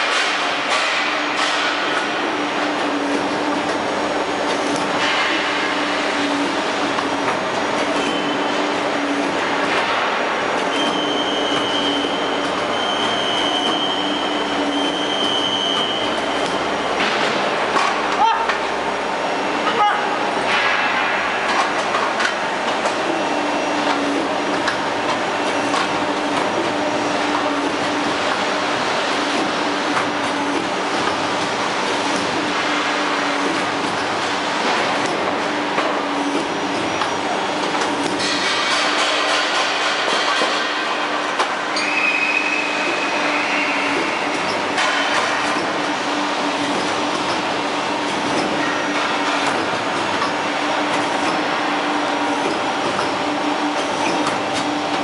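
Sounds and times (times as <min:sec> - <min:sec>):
machine hum: 0:00.0 - 0:55.0
riveting machine noise: 0:00.0 - 0:55.0.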